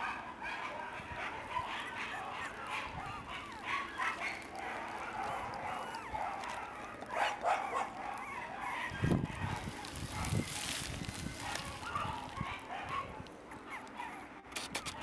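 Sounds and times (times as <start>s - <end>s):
puppy whimpering and yipping: 3.0s - 9.3s.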